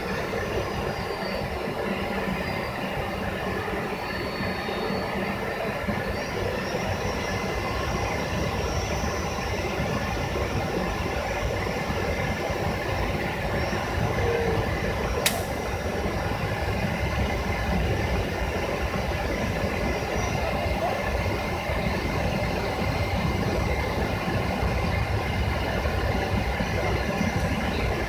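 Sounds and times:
airliner cabin engine rumble: 0.0 - 28.0
sharp click: 15.2 - 15.6.

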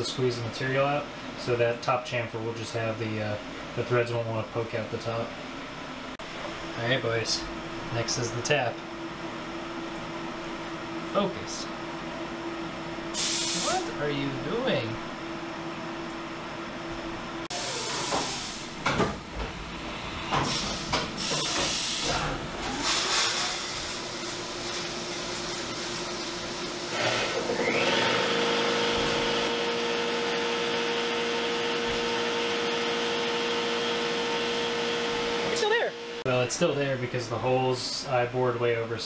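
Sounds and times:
coolant spraying hiss: 13.1 - 13.9, 17.5 - 18.8, 20.3 - 30.1.

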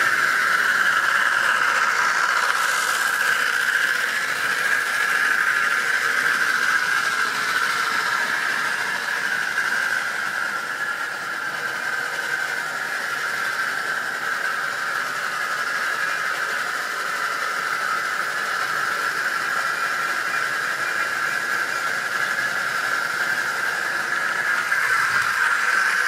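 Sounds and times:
electric motor whine: 0.0 - 26.0
model train wheels rolling: 0.0 - 26.0.

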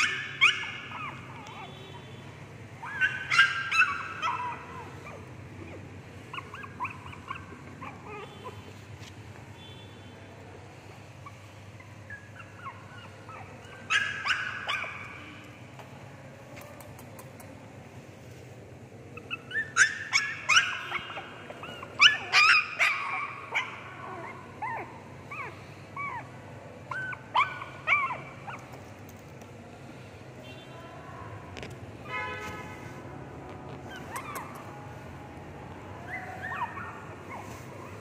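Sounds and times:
puppies yipping and whimpering: 0.0 - 1.7, 2.8 - 8.8, 11.2 - 15.2, 19.2 - 28.9, 33.8 - 34.8, 36.0 - 38.0.

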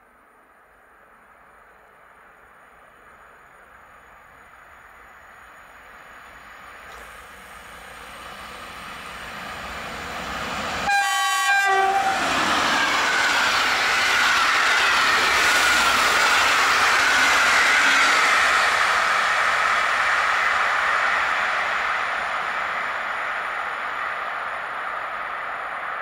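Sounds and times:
train rushing past: 3.8 - 26.0
train horn: 10.8 - 12.4
train whine falling in pitch: 10.8 - 23.6.

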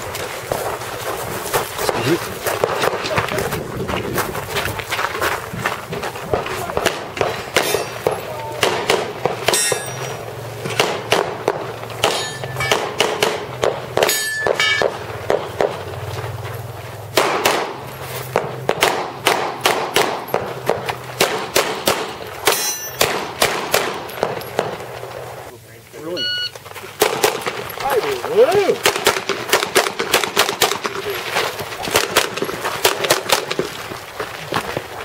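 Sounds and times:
pistol shots: 6.3 - 16.0, 17.1 - 25.0, 27.0 - 27.8, 28.7 - 31.1, 31.8 - 33.7
metallic target ring: 7.6 - 8.1, 9.4 - 10.3, 12.0 - 13.0, 14.0 - 15.0, 22.4 - 23.2.

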